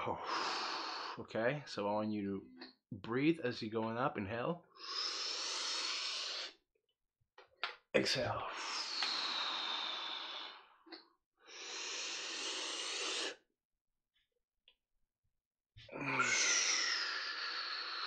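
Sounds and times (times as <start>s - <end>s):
man breathing deeply: 0.0s - 1.2s, 4.8s - 6.5s, 8.5s - 10.8s, 11.4s - 13.4s.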